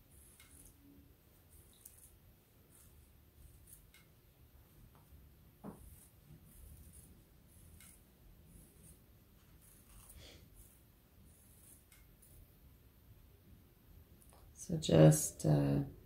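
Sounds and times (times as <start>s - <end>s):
scissors snipping fabric: 9.6s - 12.1s.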